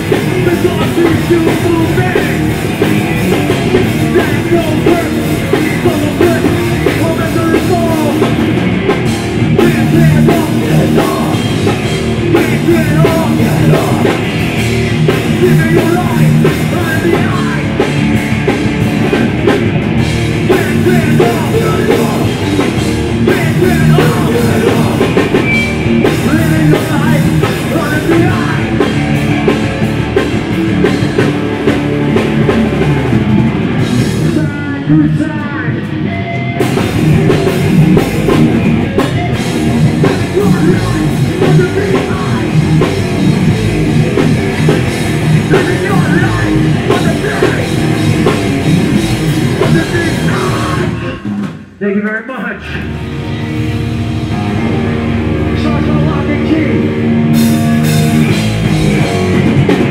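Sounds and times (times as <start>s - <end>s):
punk band playing live: 0.0s - 59.9s
shouted vocals: 49.5s - 51.3s.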